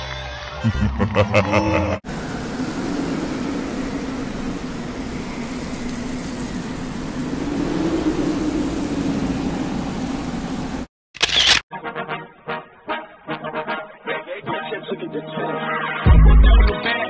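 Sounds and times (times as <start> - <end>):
low drone: 0.7 - 10.9
rumbling hiss: 2.1 - 10.9.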